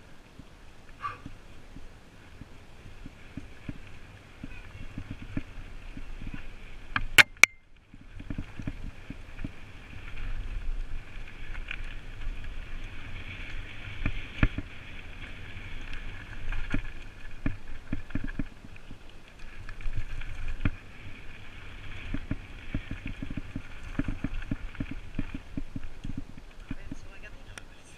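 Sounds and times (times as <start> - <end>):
bike tyres rumbling on gravel: 0.0 - 7.2, 7.8 - 27.9
wind on microphone: 1.0 - 27.3
bike knocking and rattling: 19.6 - 27.1.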